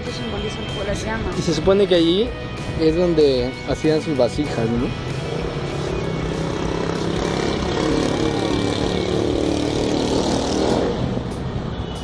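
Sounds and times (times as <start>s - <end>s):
traffic noise: 0.0s - 12.0s
vehicle engine passing: 4.9s - 11.6s.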